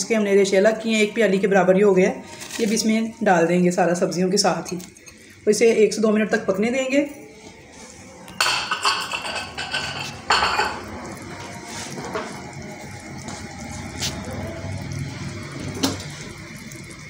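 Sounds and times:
soup bubbling in a pot: 9.0 - 17.0.

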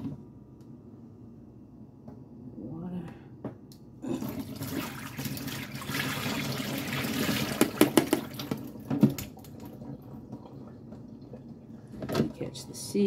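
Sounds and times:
water splashing through strainer: 4.1 - 11.6.

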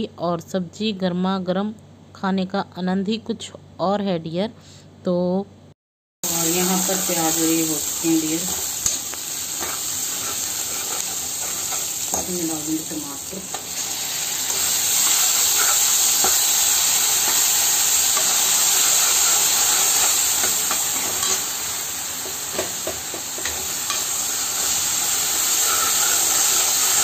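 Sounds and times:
tomato sizzling in hot oil: 6.2 - 27.0
spatula stirring and scraping: 8.5 - 12.3, 13.5 - 21.4, 25.6 - 26.6.

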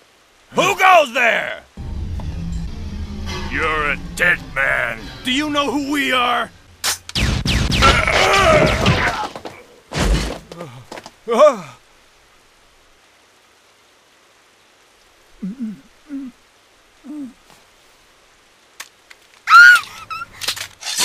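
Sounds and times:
loud crash: 1.8 - 9.4.

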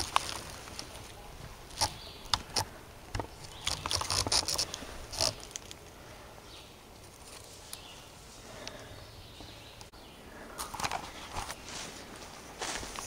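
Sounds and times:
footsteps crunching through dry leaves: 10.7 - 13.0.

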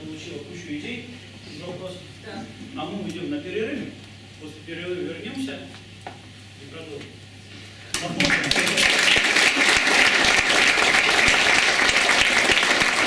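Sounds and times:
audience applauding: 7.9 - 13.0.

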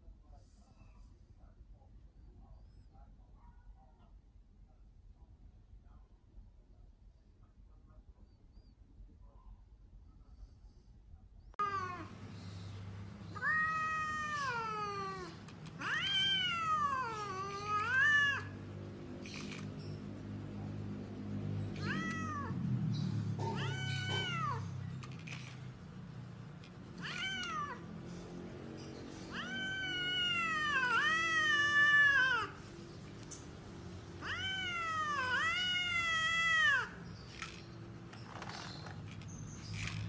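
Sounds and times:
cat meowing: 11.6 - 12.2, 13.3 - 18.6, 21.6 - 22.7, 23.3 - 24.8, 26.9 - 28.0, 29.2 - 32.7, 34.1 - 37.1.

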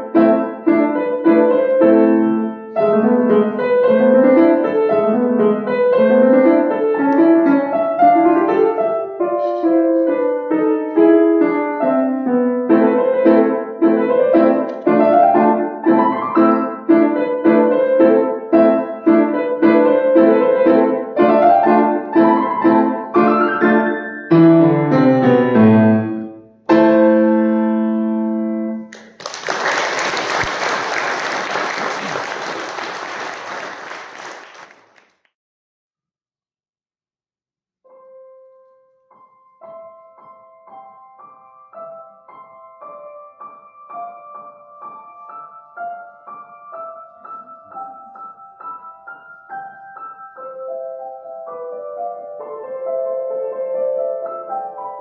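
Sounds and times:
grand piano playing lively piece: 0.0 - 34.8, 37.9 - 55.0
audience applause: 28.9 - 35.1.

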